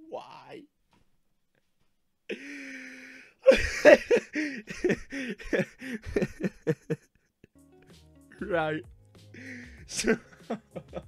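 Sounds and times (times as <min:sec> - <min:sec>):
man laughing hard: 0:03.4 - 0:07.1, 0:09.4 - 0:11.0.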